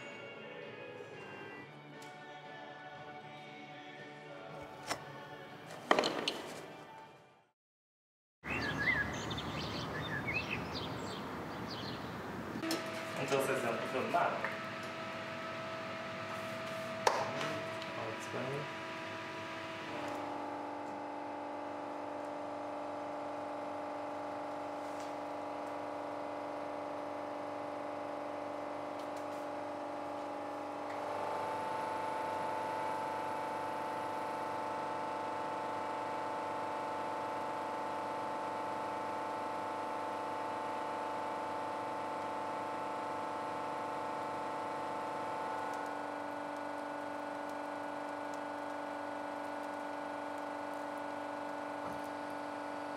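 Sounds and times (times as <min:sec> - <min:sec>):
hydraulic press whining: 0:12.6 - 0:25.7.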